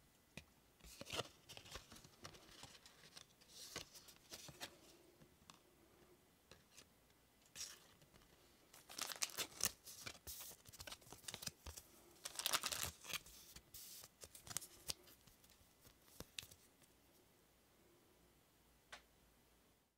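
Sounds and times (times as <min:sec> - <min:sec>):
cards rustling against each other: 0:00.8 - 0:05.7, 0:07.5 - 0:17.0.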